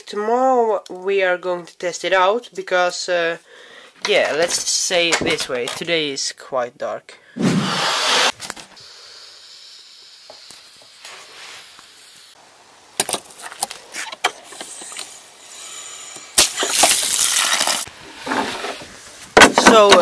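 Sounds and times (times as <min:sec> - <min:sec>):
water rushing through hose: 0:16.4 - 0:17.9.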